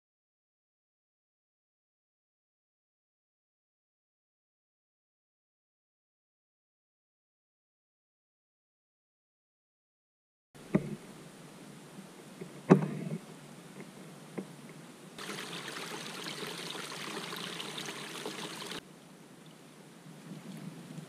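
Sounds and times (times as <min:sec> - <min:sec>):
water rushing over gravel: 0:15.2 - 0:18.8.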